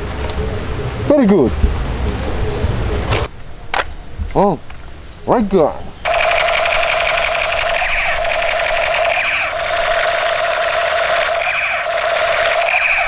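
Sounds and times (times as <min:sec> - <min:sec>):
toy space gun firing effect: 0:06.1 - 0:13.0.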